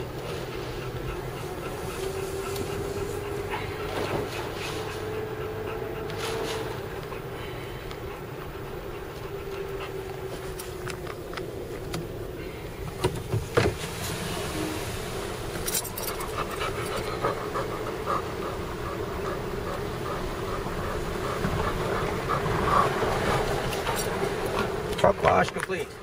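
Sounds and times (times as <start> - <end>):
dog panting: 0.0 - 11.7, 15.8 - 26.0
vehicle engine rumble: 0.0 - 26.0.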